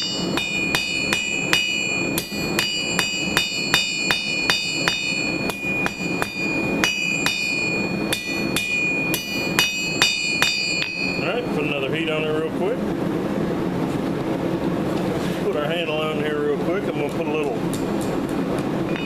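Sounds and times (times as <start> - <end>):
hammer striking steel on anvil: 0.0 - 11.5.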